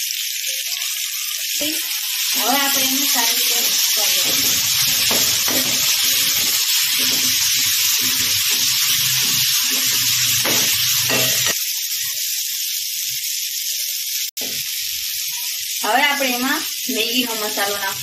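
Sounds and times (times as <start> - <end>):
vegetables sizzling in hot oil: 0.0 - 18.0
spatula stirring and knocking: 3.6 - 11.6.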